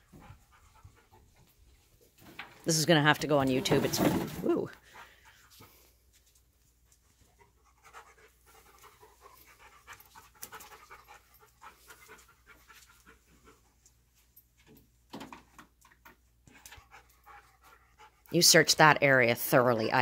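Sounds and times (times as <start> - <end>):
dog panting: 0.0 - 1.9, 6.8 - 14.1, 16.5 - 18.7.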